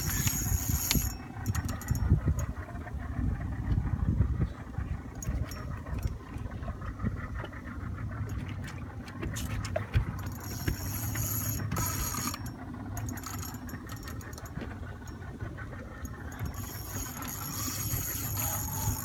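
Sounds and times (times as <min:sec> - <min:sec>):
fishing reel ratcheting whine: 0:00.0 - 0:02.5, 0:10.2 - 0:19.0
boat engine humming: 0:00.0 - 0:19.0.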